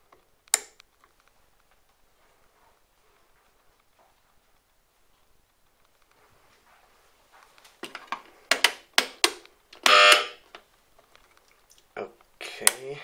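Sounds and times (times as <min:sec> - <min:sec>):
alarm horn buzzing blast: 0:09.8 - 0:10.4
alarm horn chirps: 0:09.8 - 0:10.4.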